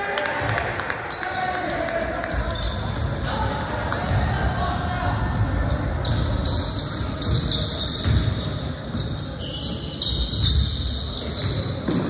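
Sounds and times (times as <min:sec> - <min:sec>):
basketball bouncing on gym floor: 0:05.2 - 0:12.0.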